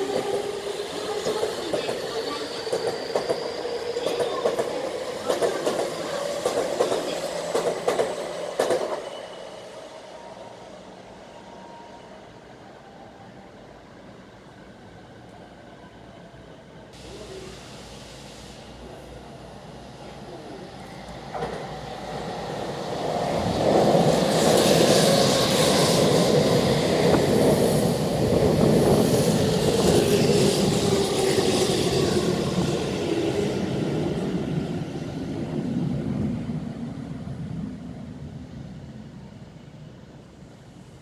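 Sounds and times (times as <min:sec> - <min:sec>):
electric train passing: 0:00.0 - 0:15.2, 0:15.9 - 0:41.0.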